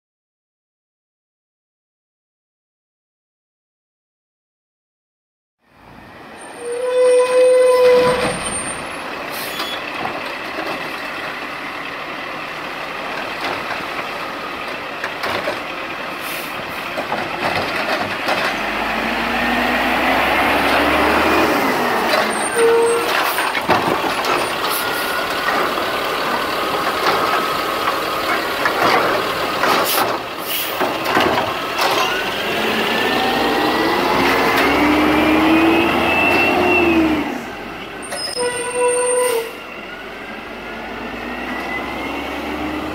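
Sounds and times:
garbage truck engine revving: 0:08.0 - 0:38.3, 0:40.0 - 0:42.9
air brake hisses: 0:09.3 - 0:09.8, 0:16.2 - 0:16.8, 0:29.9 - 0:30.8
metal clanks: 0:22.1 - 0:32.3.

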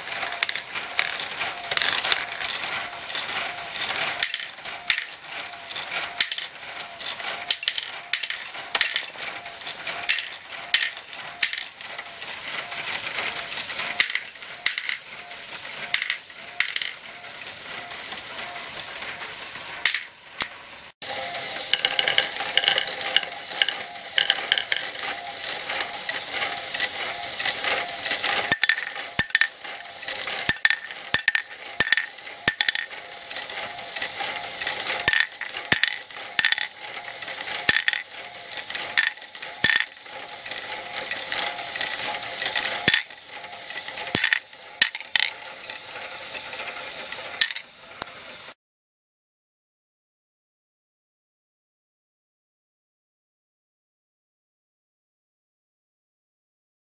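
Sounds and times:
motor gears whining: 0:00.0 - 0:48.4
plastic balls clicking and clattering: 0:00.0 - 0:48.6.

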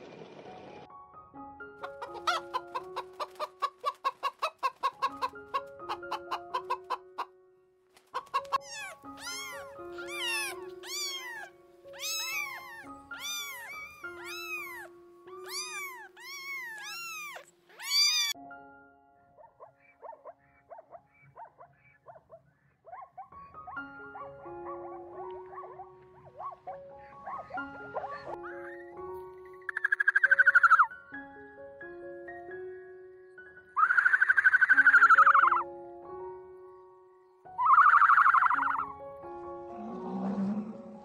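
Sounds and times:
background music with held notes: 0:00.0 - 0:21.9, 0:22.9 - 0:41.0
fowl clucking: 0:01.8 - 0:07.3, 0:08.2 - 0:10.4
cat meowing: 0:08.4 - 0:18.4.

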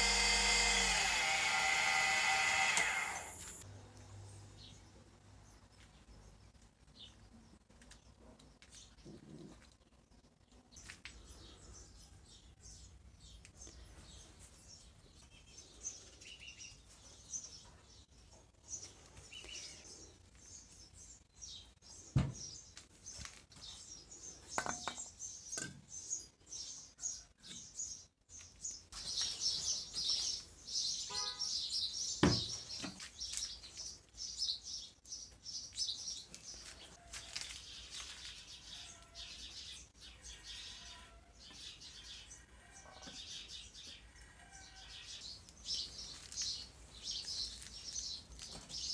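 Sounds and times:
small birds chirping: 0:00.0 - 0:48.9.

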